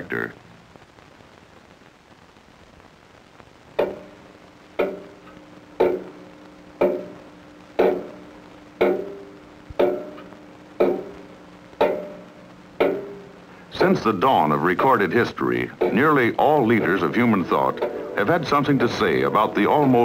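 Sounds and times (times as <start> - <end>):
faint hiss: 0.0 - 20.0
ringing struck chord: 8.8 - 13.3.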